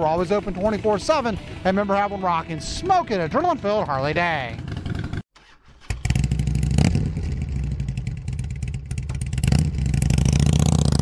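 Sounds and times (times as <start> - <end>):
motorcycle engine idling: 0.2 - 11.0
motorcycle throttle blips: 4.5 - 11.0.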